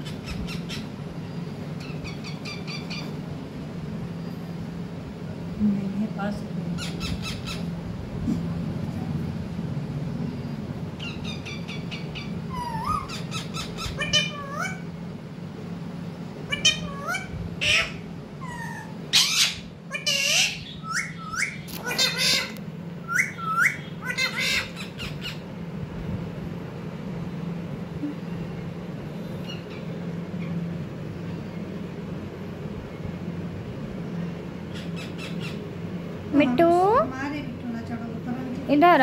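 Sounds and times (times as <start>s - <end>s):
parakeets squawking and chirping: 0.0s - 3.2s, 6.8s - 7.7s, 11.0s - 14.9s, 16.4s - 25.5s, 29.3s - 30.6s, 34.7s - 35.7s.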